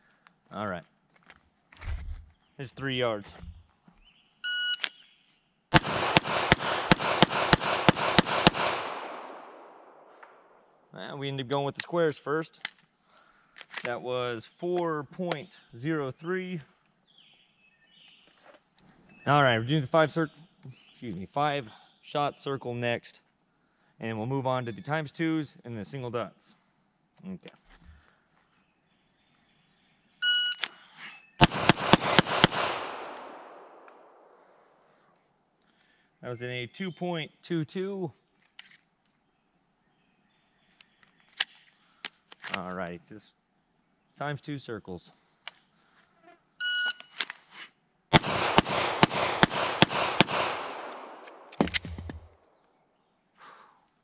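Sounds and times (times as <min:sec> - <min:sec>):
gunshot echo: 0:05.7 - 0:10.5, 0:31.4 - 0:34.5, 0:48.1 - 0:52.3
rapid pistol shots: 0:05.7 - 0:10.5, 0:31.4 - 0:34.5, 0:48.1 - 0:52.3.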